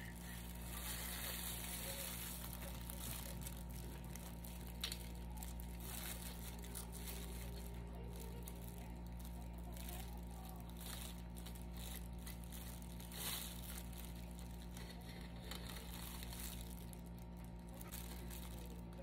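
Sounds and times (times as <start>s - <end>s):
low steady hum: 0.0s - 19.0s
plastic glove rustling: 0.0s - 19.0s.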